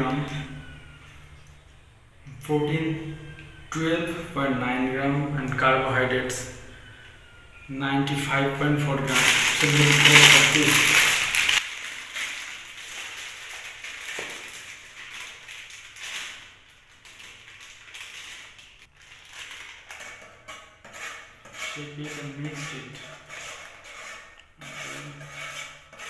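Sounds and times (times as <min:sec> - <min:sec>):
flour pouring from packet: 0:09.1 - 0:16.5
plastic packet crinkling: 0:09.1 - 0:20.2.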